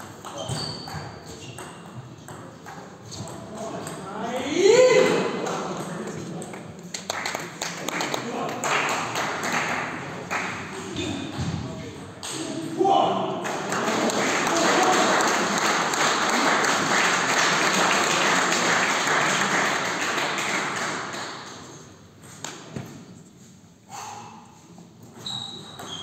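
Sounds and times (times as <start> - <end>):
spectators applauding: 7.0 - 10.7, 13.4 - 21.3.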